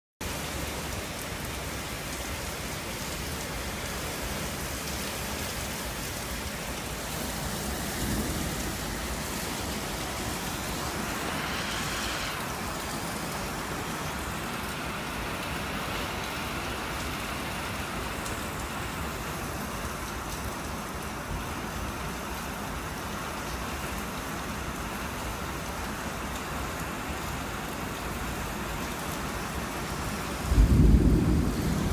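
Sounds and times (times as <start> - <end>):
heavy rain: 0.2 - 31.9
gusting wind: 3.7 - 19.8, 29.4 - 31.9.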